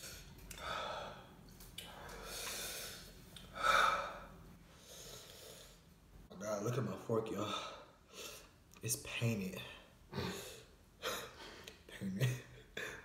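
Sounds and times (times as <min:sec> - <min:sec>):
man breathing hard: 0:00.0 - 0:05.8.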